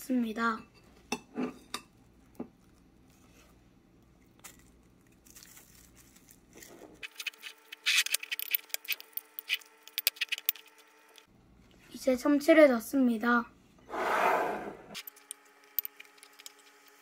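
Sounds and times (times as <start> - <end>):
plastic wrap crinkling: 4.3 - 9.0.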